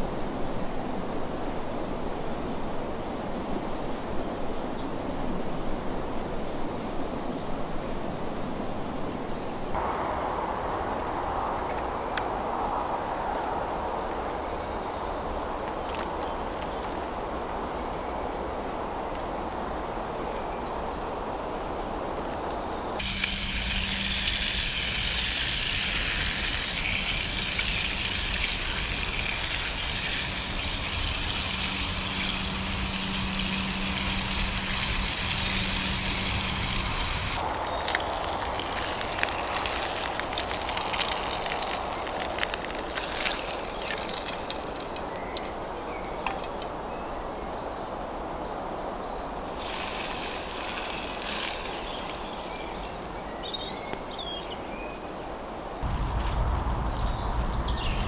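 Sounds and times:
steady rushing hiss: 22.9 - 48.4, 49.4 - 56.0
bacon sizzling in a pan: 23.0 - 47.1, 49.5 - 53.1.

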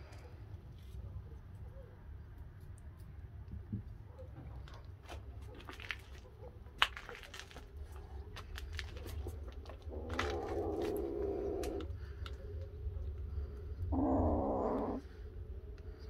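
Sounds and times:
small crunching clicks: 2.5 - 13.3
cat low drawn-out call: 9.8 - 12.0, 13.7 - 15.2.

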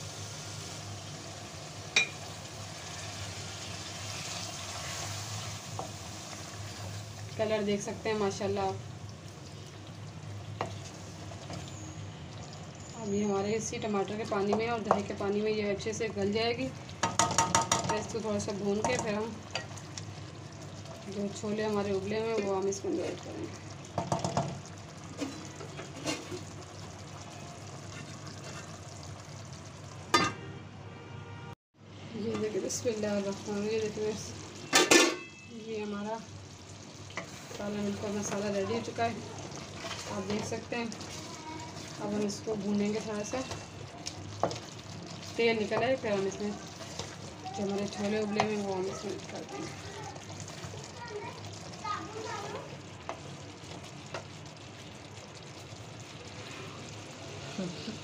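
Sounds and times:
chicken sizzling in a pan: 0.0 - 30.2, 32.2 - 58.0
spatula knocking against pan: 17.0 - 18.1.

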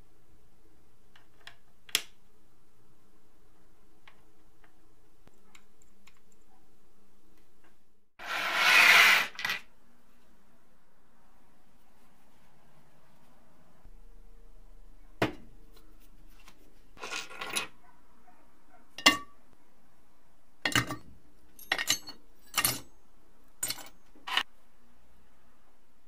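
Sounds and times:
scrap metal clinking into crucible: 23.6 - 24.4.

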